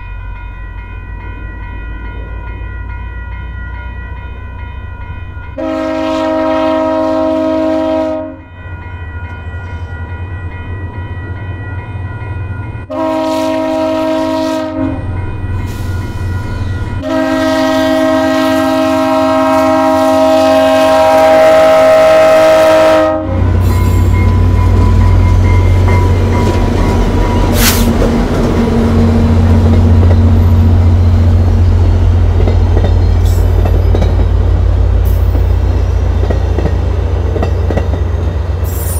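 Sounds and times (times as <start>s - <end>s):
crossing signal bell ringing: 0.0s - 38.9s
diesel locomotive rumble: 0.0s - 38.9s
train air horn blasts: 5.6s - 8.5s, 12.9s - 15.1s, 17.0s - 24.2s, 27.5s - 28.0s.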